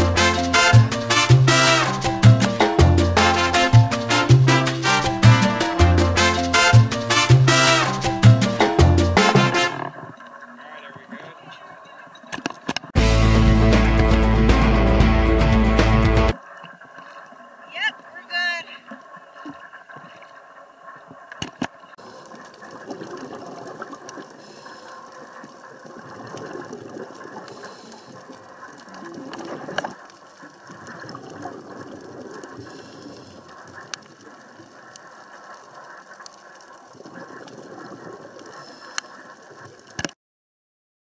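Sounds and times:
underwater bubbling of exhaled air: 18.8s - 40.0s.

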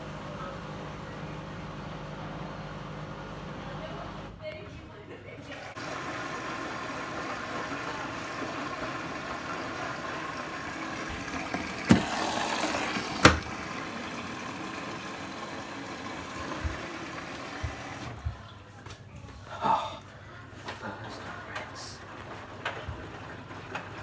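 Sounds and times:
water running into washing machine: 5.4s - 18.6s, 21.1s - 24.0s
detergent drawer clicking: 11.2s - 13.7s.

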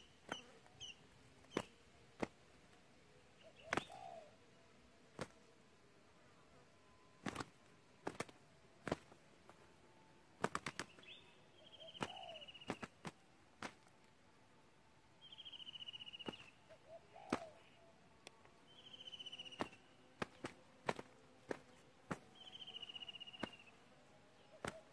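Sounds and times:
dove wing slaps: 0.0s - 0.5s, 1.4s - 2.7s, 3.6s - 4.2s, 5.1s - 5.5s, 7.2s - 9.6s, 10.4s - 11.2s, 11.8s - 13.9s, 16.2s - 16.6s, 17.2s - 17.6s, 19.5s - 22.5s, 23.2s - 23.7s, 24.5s - 24.9s.

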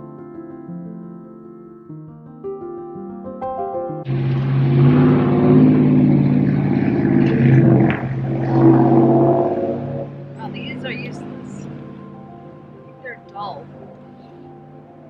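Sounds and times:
motor engine running: 4.1s - 15.0s.

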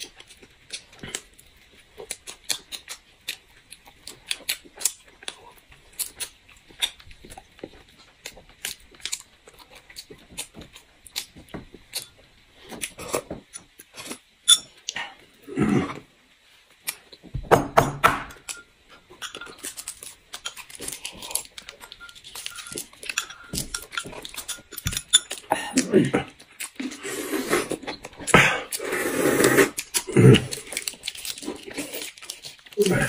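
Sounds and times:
wet chewing and lip smacking: 26.4s - 27.0s
person humming: 32.8s - 33.0s.

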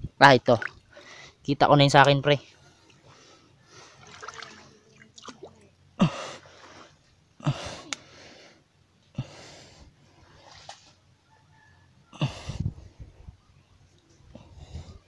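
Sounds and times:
person breathing hard: 0.9s - 1.4s, 6.0s - 10.1s, 14.3s - 15.0s.

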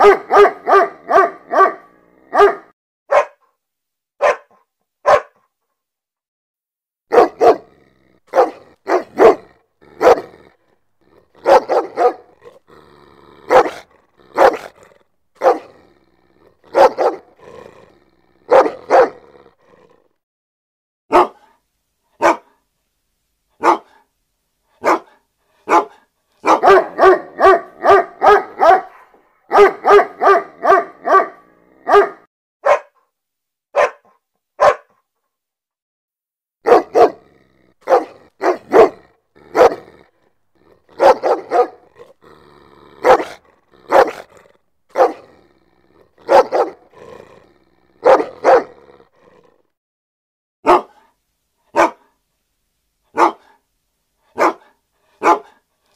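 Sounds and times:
dog barking: 0.0s - 3.5s, 4.2s - 5.5s, 7.1s - 10.5s, 11.3s - 12.6s, 13.4s - 14.8s, 15.4s - 15.8s, 16.6s - 17.5s, 18.5s - 19.3s, 21.1s - 21.6s, 22.2s - 22.6s, 23.6s - 24.1s, 24.8s - 33.1s, 33.7s - 35.0s, 36.6s - 40.0s, 40.8s - 42.2s, 43.0s - 45.4s, 46.1s - 47.0s, 47.9s - 48.9s, 50.6s - 52.2s, 53.1s - 53.6s, 54.3s - 55.6s.

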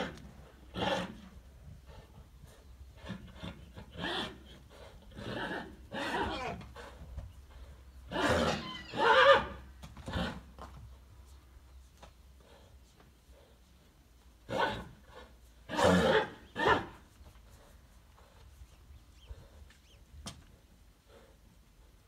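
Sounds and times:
horses neighing: 3.0s - 7.0s, 8.1s - 10.5s.

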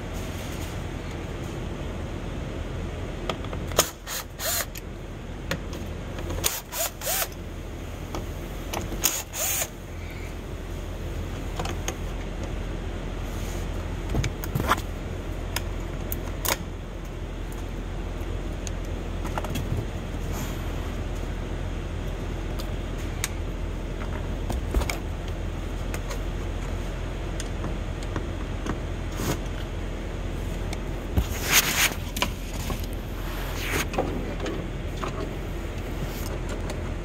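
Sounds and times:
steady low hum: 0.0s - 37.0s
cordless drill spinning: 4.0s - 4.7s, 6.5s - 7.3s, 9.1s - 9.7s.

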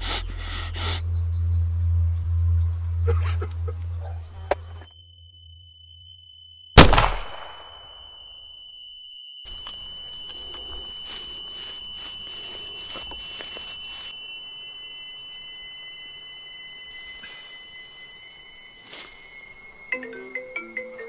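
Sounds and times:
lower steady tone: 0.0s - 21.0s
high-pitched ringing tone: 0.2s - 6.8s, 7.6s - 21.0s
rope rustling in dry grass: 9.5s - 14.4s.

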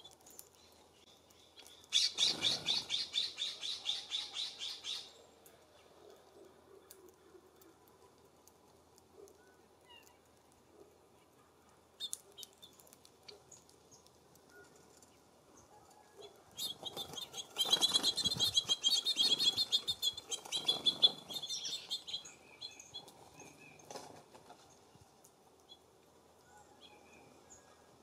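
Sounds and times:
wings fluttering: 0.0s - 3.8s, 15.9s - 25.2s
songbirds chirping: 0.0s - 28.0s.

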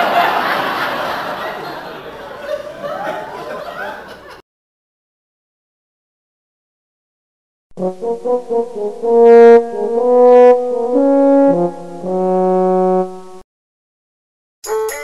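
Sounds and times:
brass music phrase: 7.8s - 13.4s.

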